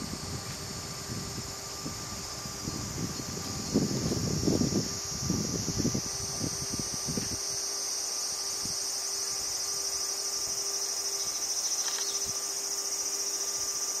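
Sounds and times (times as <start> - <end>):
insect chorus pulsing trill: 0.0 - 14.0.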